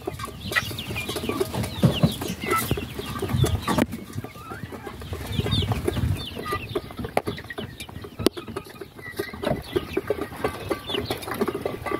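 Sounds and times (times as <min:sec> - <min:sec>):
young chickens clucking and peeping: 0:00.0 - 0:11.9.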